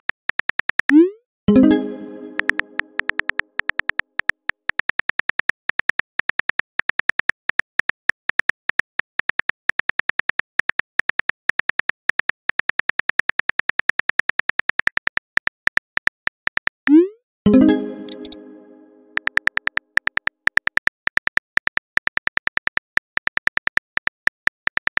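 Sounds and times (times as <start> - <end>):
phone keyboard typing clicks: 17.9 - 18.4.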